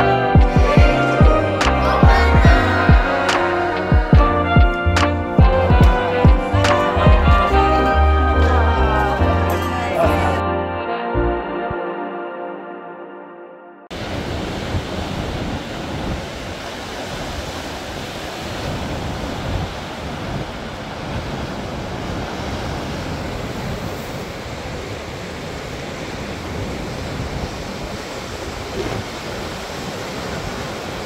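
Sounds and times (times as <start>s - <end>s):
surf breaking on rocky shore: 13.9s - 31.0s
wind buffeting microphone: 13.9s - 31.0s.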